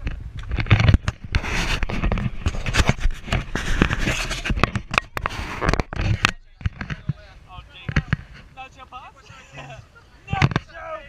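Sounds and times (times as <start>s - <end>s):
camera handling rubbing and knocks: 0.0s - 8.6s.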